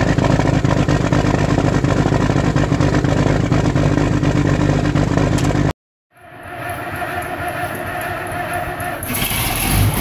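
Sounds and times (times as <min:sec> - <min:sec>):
diesel engine clattering: 0:00.0 - 0:05.7, 0:06.3 - 0:10.0.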